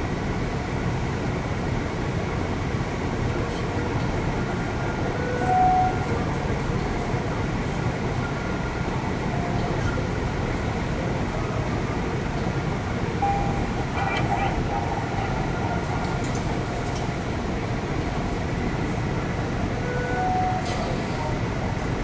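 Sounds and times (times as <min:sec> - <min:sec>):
short faint tone: 0:13.2 - 0:14.4.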